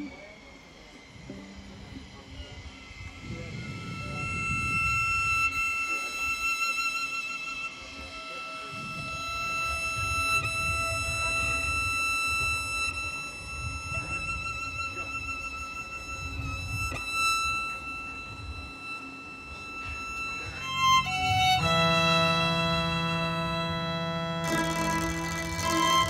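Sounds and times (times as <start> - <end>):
violin sustained high notes: 0.0 - 26.0
low chord of held notes: 15.5 - 26.0.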